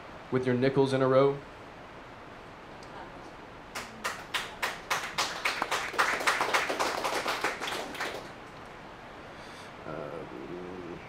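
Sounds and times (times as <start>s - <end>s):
audience clapping: 3.7s - 8.5s.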